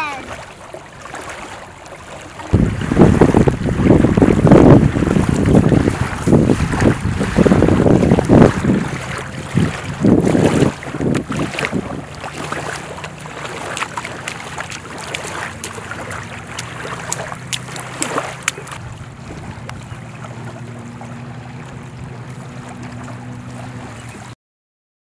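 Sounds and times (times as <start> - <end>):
wind buffeting microphone: 2.5 - 24.3
small clicks or splashes: 10.4 - 18.8.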